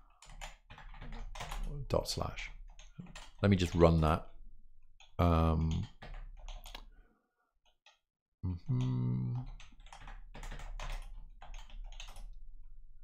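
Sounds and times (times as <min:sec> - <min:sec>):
computer keyboard typing: 0:00.0 - 0:01.8, 0:02.5 - 0:06.9, 0:08.7 - 0:12.4.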